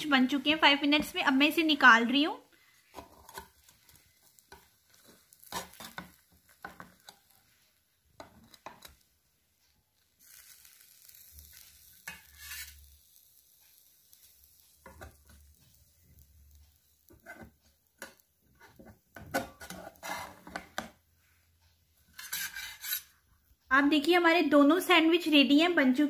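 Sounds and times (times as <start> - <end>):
metal spatula scraping a sandwich maker: 4.3 - 7.4, 10.2 - 12.9, 18.7 - 20.8, 22.1 - 23.2.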